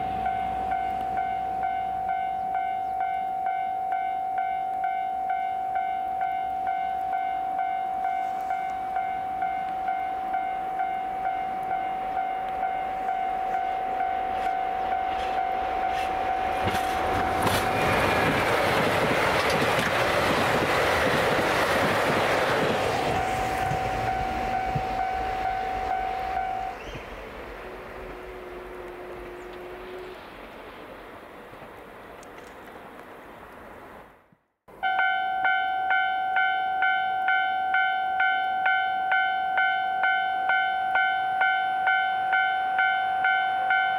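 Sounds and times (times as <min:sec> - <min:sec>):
train wheels on rails: 0:00.0 - 0:03.5, 0:05.7 - 0:34.2
level crossing warning bell: 0:00.0 - 0:19.6, 0:20.2 - 0:26.8, 0:34.7 - 0:43.9.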